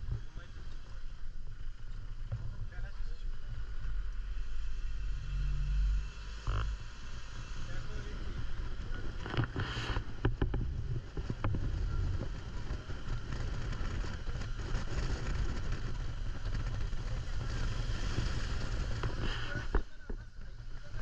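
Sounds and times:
engine and road rumble: 0.0 - 21.0
wind buffeting microphone: 6.9 - 21.0.

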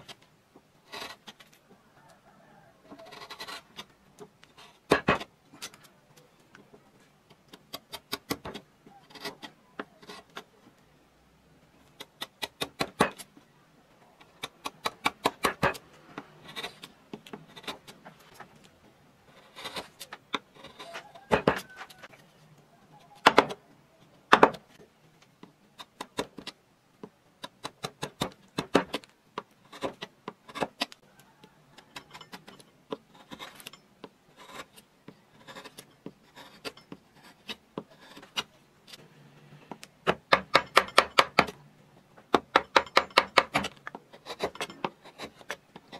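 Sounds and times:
gouge scraping wood: 0.8 - 1.5, 2.9 - 3.9, 15.3 - 18.4, 19.3 - 22.0, 34.3 - 41.5, 43.0 - 45.9.

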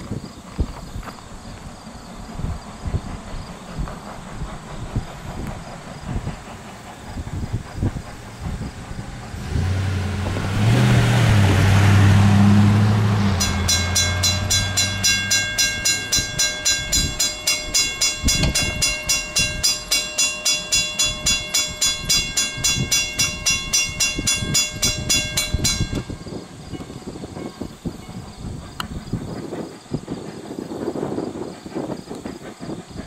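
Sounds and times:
rush of steam: 0.0 - 19.9, 26.1 - 33.0
steam locomotive whistle: 9.4 - 28.3
railroad crossing bell ringing: 12.4 - 28.5.

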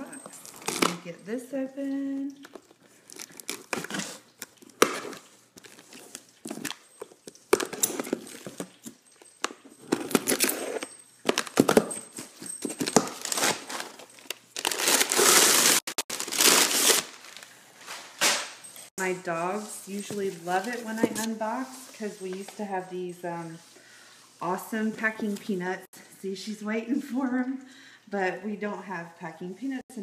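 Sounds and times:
paper crinkling: 2.0 - 9.2, 9.8 - 18.5
box cutter slitting tape: 14.6 - 17.2.

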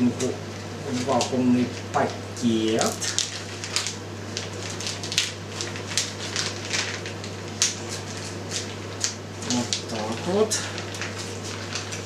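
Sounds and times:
plastic bag crinkling: 2.7 - 12.0.

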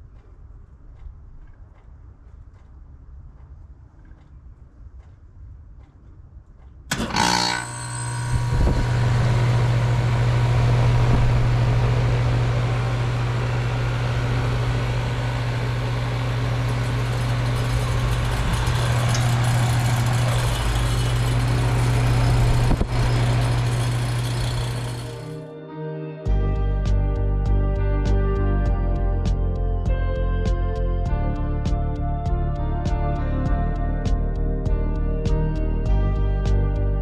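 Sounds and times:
compressor humming: 6.9 - 25.4
heat pump starting with loud rush: 6.9 - 25.4
fan and airflow noise: 8.1 - 25.3.

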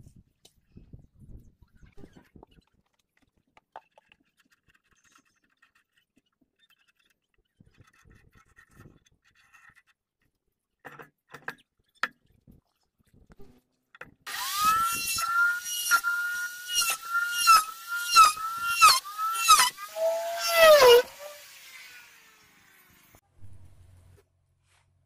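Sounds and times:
electric router whining: 14.3 - 23.2.

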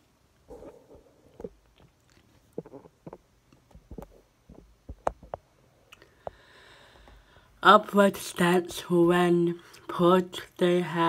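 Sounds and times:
faint scattered clicks and knocks: 1.3 - 5.5
soft breath-like hiss: 6.0 - 7.6.

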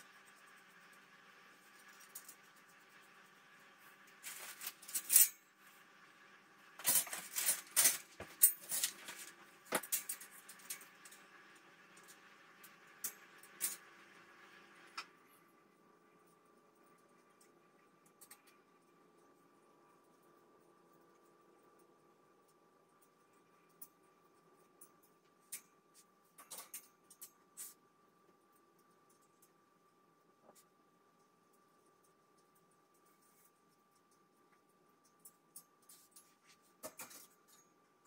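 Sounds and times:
steady high hum: 0.0 - 38.0
metal wire shelving clinking: 4.2 - 5.4, 6.8 - 11.2, 26.4 - 27.8, 35.8 - 37.7.

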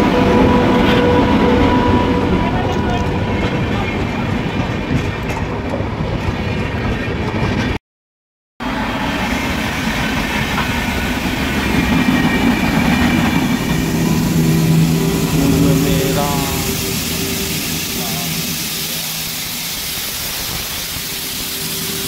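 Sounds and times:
train wheels clattering over rail joints: 2.7 - 7.7.

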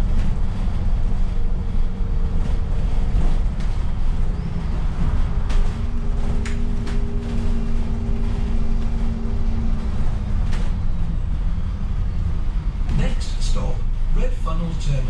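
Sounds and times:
body knocks and rattles: 0.0 - 11.2
bus engine and road rumble: 0.0 - 15.0
steady whine: 0.0 - 15.0.

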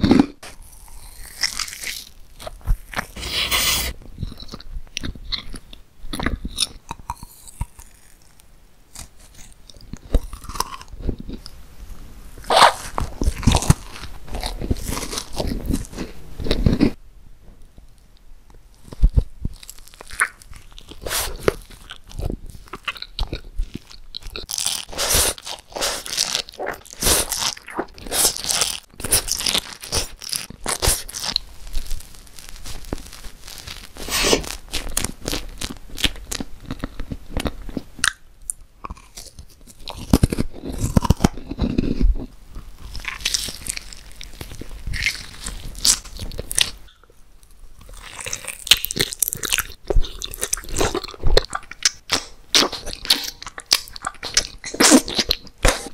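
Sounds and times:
biting and crunching: 0.0 - 11.6, 12.4 - 17.0, 18.8 - 55.9
moist chewing: 18.8 - 55.9.

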